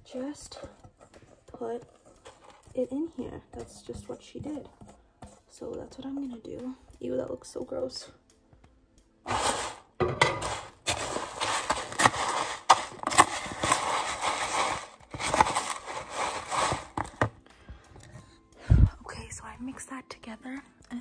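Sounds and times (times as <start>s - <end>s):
spatula stirring crunchy cereal: 0.1s - 6.4s, 9.3s - 17.4s.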